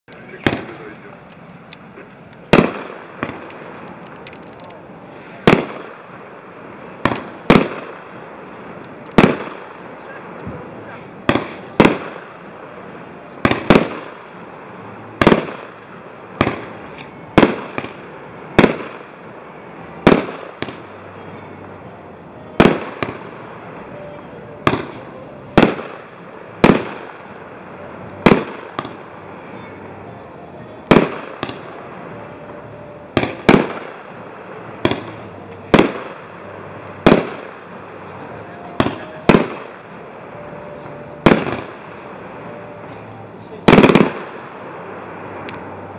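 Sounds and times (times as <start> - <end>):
firework shells banging: 0.1 - 12.6, 24.6 - 45.9.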